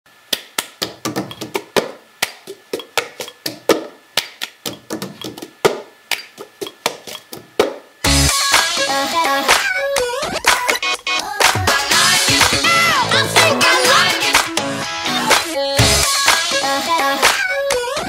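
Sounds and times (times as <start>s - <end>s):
sharp percussive taps: 0.3s - 7.9s
electronic dubstep music: 8.0s - 16.9s.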